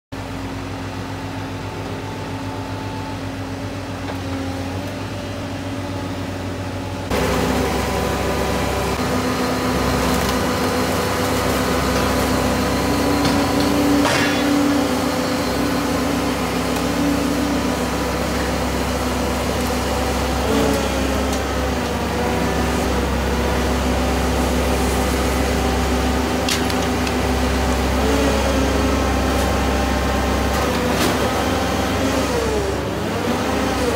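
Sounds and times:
heavy machinery diesel hum: 0.2 - 33.9
sharp metal clank: 14.0 - 14.6.

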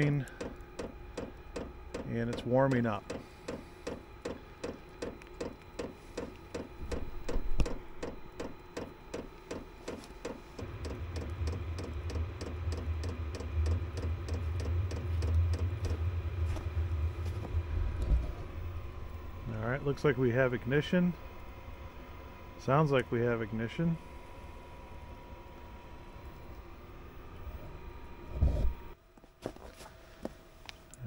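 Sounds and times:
burner low rumble: 0.0 - 29.0
blower fan whirring: 0.0 - 31.0
fuel pump ticking: 0.3 - 15.7.

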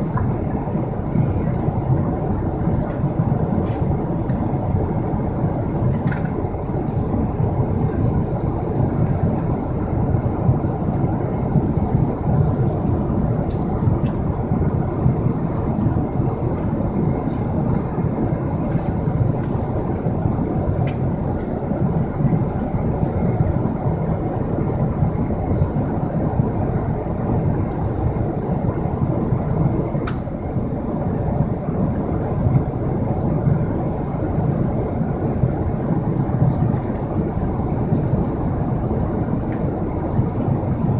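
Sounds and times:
airplane cabin roar: 0.0 - 40.9.

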